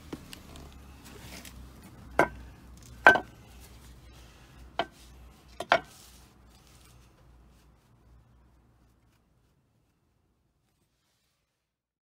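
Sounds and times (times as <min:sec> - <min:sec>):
metal part knocking on concrete: 0:03.0 - 0:03.3, 0:05.6 - 0:05.9.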